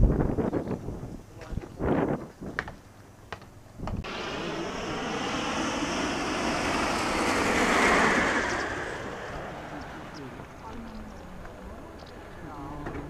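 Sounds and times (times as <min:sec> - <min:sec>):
propeller aircraft passing overhead: 0:04.0 - 0:13.0.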